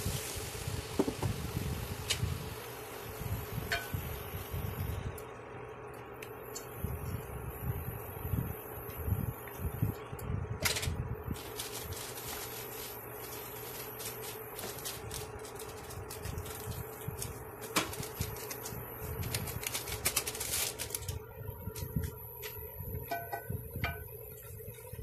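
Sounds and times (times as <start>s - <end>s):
cooktop fan hum: 0.0s - 25.0s
meat sizzling and crackling: 11.4s - 21.1s.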